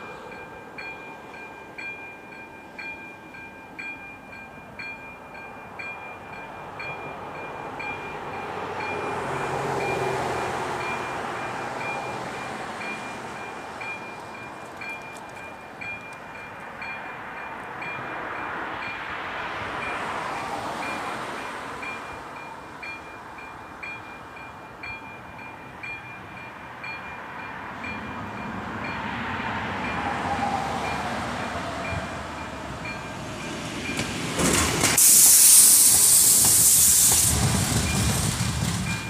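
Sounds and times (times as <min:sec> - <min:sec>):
level-crossing warning bell: 0:00.0 - 0:34.3, 0:37.5 - 0:39.0
approaching train rail noise: 0:00.0 - 0:39.0
loud hissing rush: 0:34.8 - 0:37.9.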